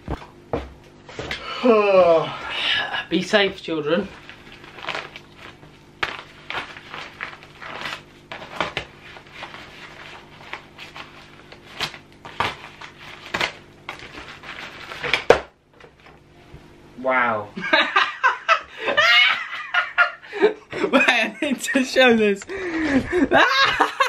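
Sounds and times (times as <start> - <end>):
plastic packet rustling and crackling: 4.1 - 15.2.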